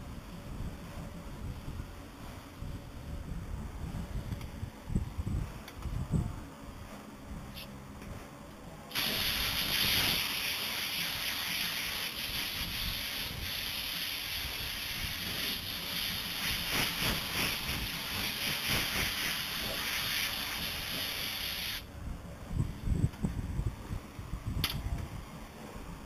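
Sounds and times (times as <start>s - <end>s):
compressed-air blow gun hissing: 8.9s - 21.9s.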